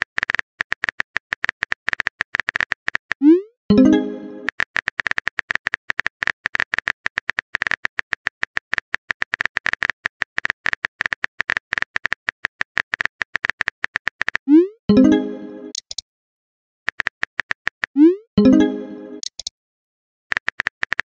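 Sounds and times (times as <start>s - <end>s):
phone keyboard typing clicks: 3.8s - 14.4s, 15.7s - 16.0s, 19.1s - 19.5s, 20.3s - 21.0s.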